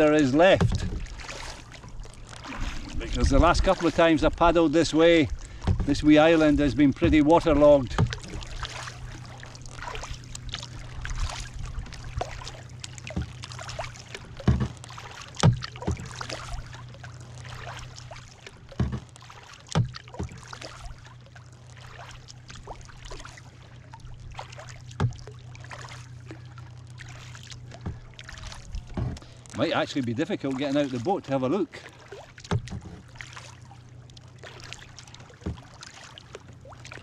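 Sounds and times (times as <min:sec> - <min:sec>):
paddle splashing and dripping: 0:00.0 - 0:37.0
water lapping against hull: 0:00.0 - 0:37.0
hollow knocks against hull: 0:00.4 - 0:04.0, 0:05.4 - 0:06.2, 0:06.9 - 0:09.4, 0:11.0 - 0:16.7, 0:17.8 - 0:21.0, 0:24.8 - 0:25.3, 0:27.6 - 0:29.6, 0:32.4 - 0:33.4, 0:34.6 - 0:37.0.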